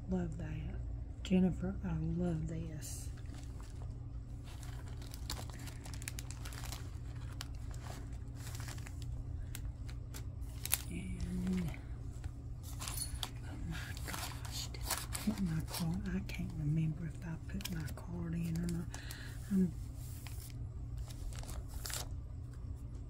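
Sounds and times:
low hum: 0.0s - 23.0s
plastic wrapping crinkling: 3.0s - 22.2s
woman's voice murmuring: 13.4s - 19.8s.

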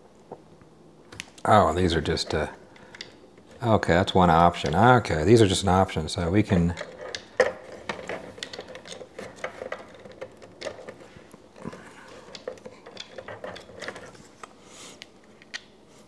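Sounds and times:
plastic parts clicking: 2.1s - 5.0s, 6.5s - 15.8s.

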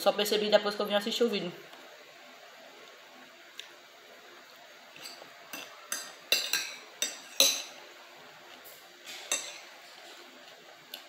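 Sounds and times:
fork and knife clinking on plate: 5.0s - 7.8s.

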